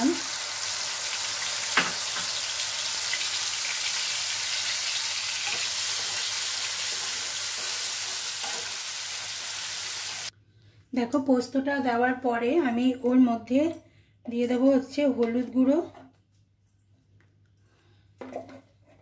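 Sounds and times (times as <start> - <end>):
oil sizzling in a frying pan: 0.0 - 10.3
spatula stirring in a pan: 5.3 - 8.8.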